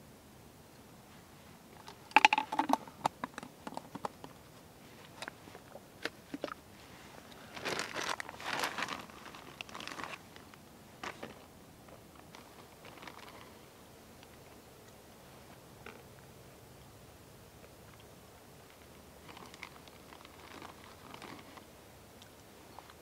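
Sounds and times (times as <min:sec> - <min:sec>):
crinkly material crackling: 0:01.1 - 0:14.6, 0:18.6 - 0:23.0
material rustling: 0:06.7 - 0:11.4.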